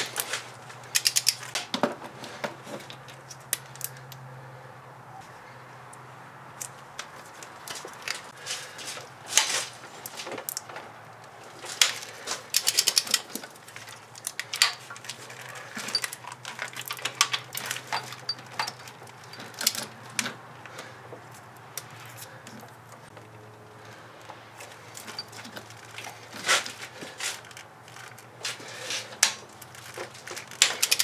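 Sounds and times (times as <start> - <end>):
ratchet clicking: 0.9 - 1.5, 12.5 - 13.3, 30.6 - 31.0.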